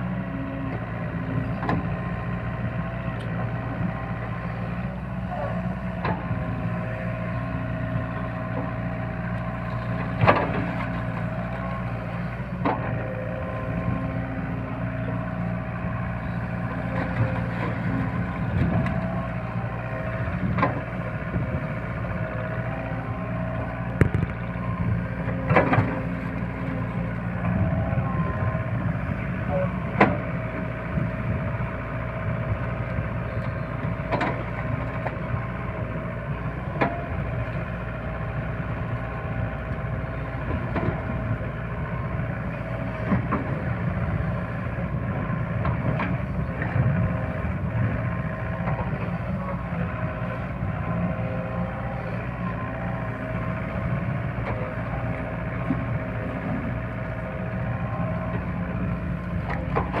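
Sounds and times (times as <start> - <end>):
excavator diesel engine running: 0.0 - 60.0.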